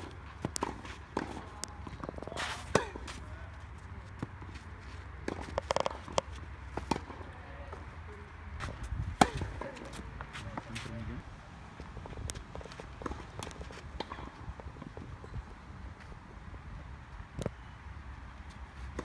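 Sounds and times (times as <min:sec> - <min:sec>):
tennis balls struck by racquets: 0:00.0 - 0:03.4, 0:04.0 - 0:07.9, 0:08.6 - 0:11.0, 0:12.0 - 0:15.1.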